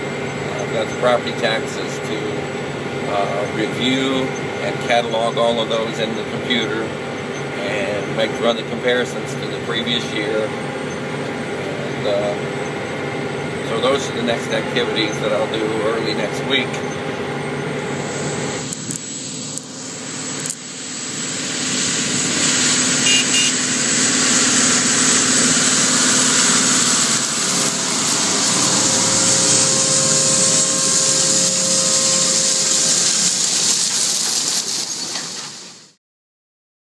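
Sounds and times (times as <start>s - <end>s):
tractor engine under load: 0.0s - 35.9s
machinery hiss: 13.8s - 36.0s.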